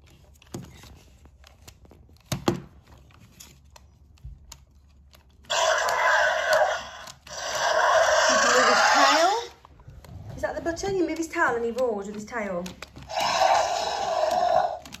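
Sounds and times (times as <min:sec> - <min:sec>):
recorded dinosaur roar from speaker: 0:05.5 - 0:09.5, 0:13.1 - 0:14.9.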